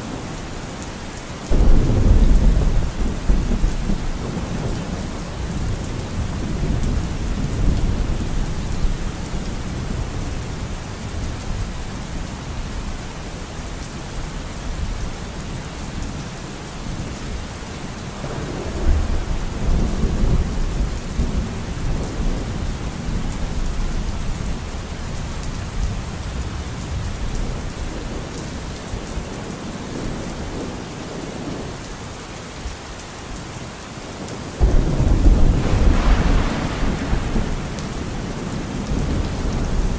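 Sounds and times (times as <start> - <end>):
steady rain: 0.0 - 39.9
rolling thunder: 1.5 - 10.4, 18.2 - 23.8, 34.6 - 39.9.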